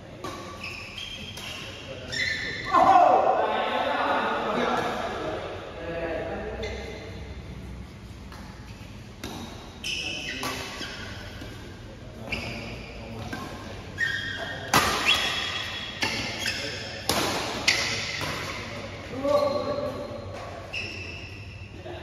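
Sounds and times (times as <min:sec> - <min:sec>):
shoes squeaking on court: 0:00.2 - 0:02.7, 0:08.4 - 0:21.7
rackets hitting shuttlecock: 0:08.3 - 0:09.7, 0:10.3 - 0:11.7, 0:14.6 - 0:19.3.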